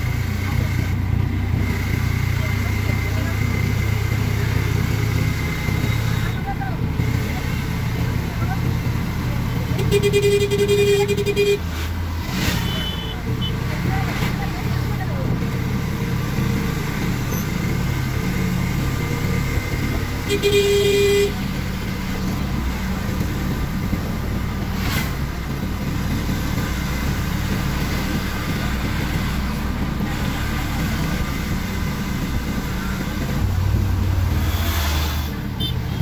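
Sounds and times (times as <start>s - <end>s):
vehicle engine and road noise: 0.0s - 36.0s
vehicle horn: 9.7s - 11.7s, 12.3s - 13.6s, 20.2s - 21.5s, 35.6s - 36.0s.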